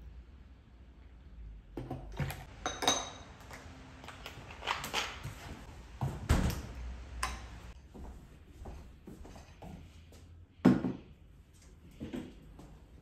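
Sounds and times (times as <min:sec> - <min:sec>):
glassware knocking and clinking: 0:02.2 - 0:03.3.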